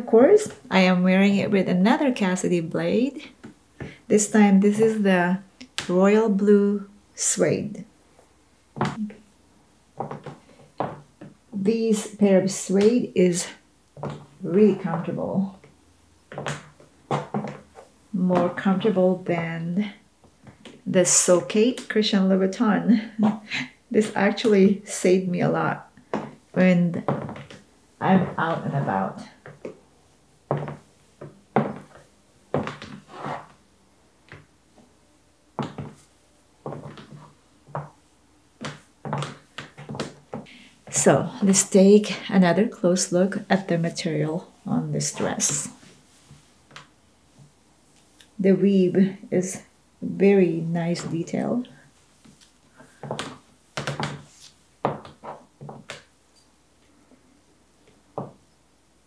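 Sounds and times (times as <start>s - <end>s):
short knocks and scuffs: 8.8s - 9.0s
high heels clicking on wood floor: 10.0s - 11.4s, 14.0s - 19.5s, 26.0s - 29.8s, 30.5s - 33.5s, 35.6s - 36.0s, 36.6s - 38.0s, 38.6s - 41.6s, 52.3s - 56.1s, 58.2s - 58.4s.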